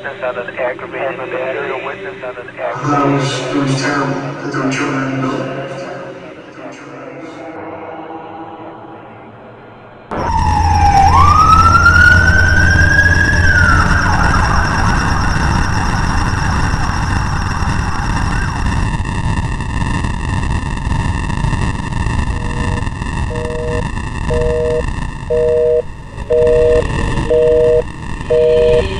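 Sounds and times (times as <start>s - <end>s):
emergency siren wailing: 10.1s - 18.9s, 22.4s - 28.9s
dense steady noise with held tones: 10.1s - 28.9s
heavy low rumble: 10.1s - 28.9s
telephone busy-signal beep: 22.5s - 28.9s.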